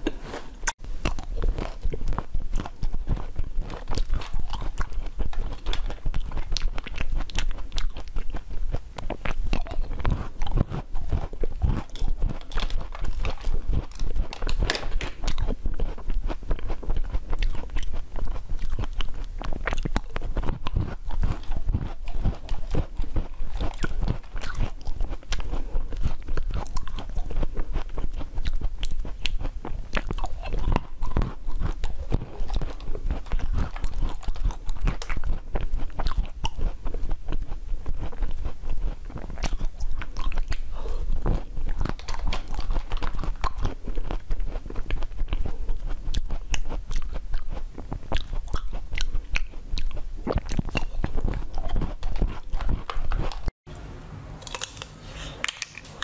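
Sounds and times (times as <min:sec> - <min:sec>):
crunching frozen berries: 0:00.2 - 0:53.5.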